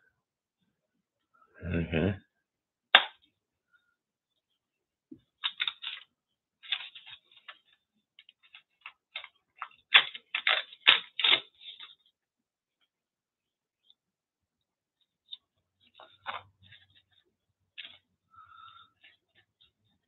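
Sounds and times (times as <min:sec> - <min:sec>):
paper crinkling and tearing: 0:05.4 - 0:12.1.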